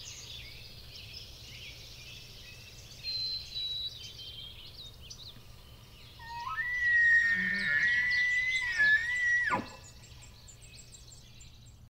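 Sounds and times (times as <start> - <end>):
birds chirping: 0.0 - 11.9
high bird whistle: 6.2 - 9.9.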